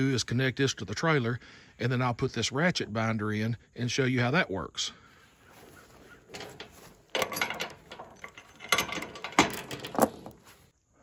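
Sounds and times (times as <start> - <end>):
steel chain clinking and rattling: 6.2 - 10.6.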